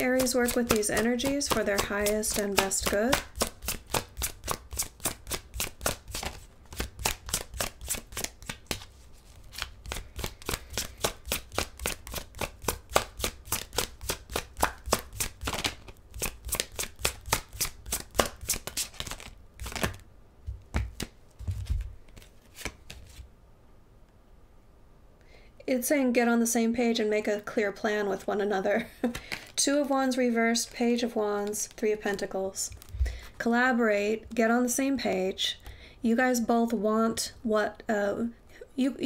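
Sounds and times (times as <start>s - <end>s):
cards being shuffled: 0.0s - 23.3s, 29.0s - 29.7s, 30.5s - 33.4s.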